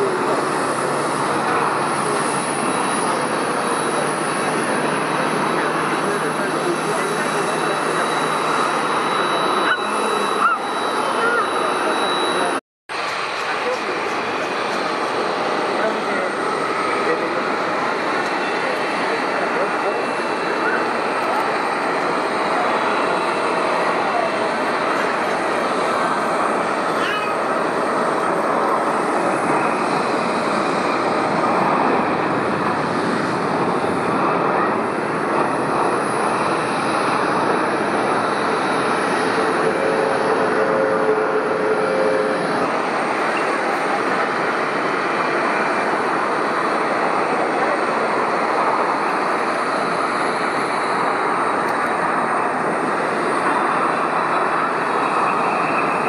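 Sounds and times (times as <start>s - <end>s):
jet engines rushing: 0.0s - 56.0s.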